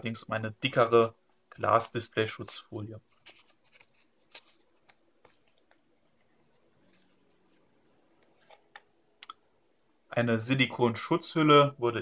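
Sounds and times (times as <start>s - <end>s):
paper and plastic rustling: 2.3s - 7.7s.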